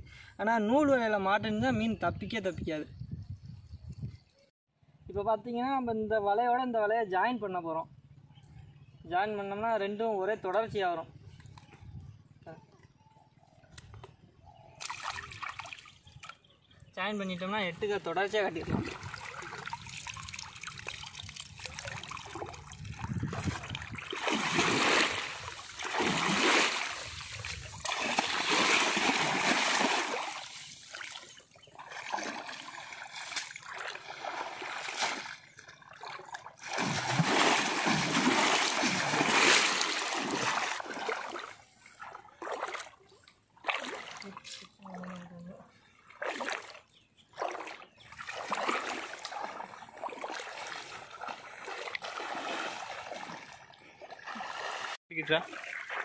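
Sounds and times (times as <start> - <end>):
water splashing and dripping: 14.8 - 16.4, 18.6 - 45.3, 46.1 - 56.0.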